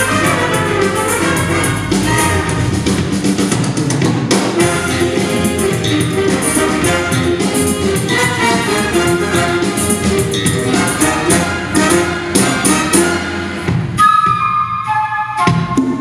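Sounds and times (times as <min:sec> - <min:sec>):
jazz big band playing: 0:00.0 - 0:14.2
flute solo: 0:13.0 - 0:16.0.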